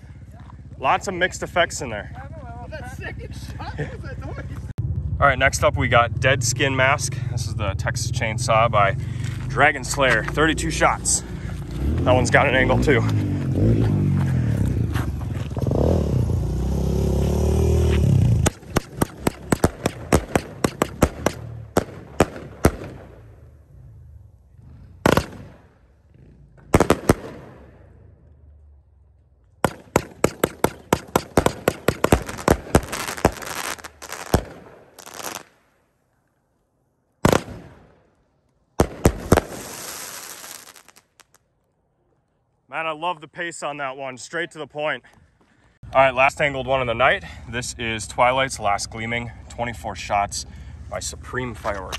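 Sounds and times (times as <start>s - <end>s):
fireworks crackling: 17.8s - 23.2s, 25.0s - 25.6s, 26.7s - 27.6s, 29.6s - 35.6s, 38.8s - 41.5s
fireworks cake firing: 18.4s - 23.2s, 25.0s - 25.6s, 29.6s - 35.6s, 37.2s - 37.8s, 38.8s - 41.4s.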